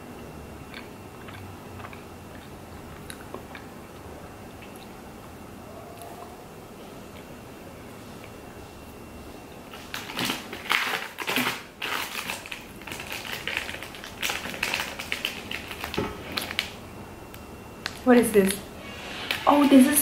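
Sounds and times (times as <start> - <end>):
plastic wrappers crinkling: 9.7 - 16.8.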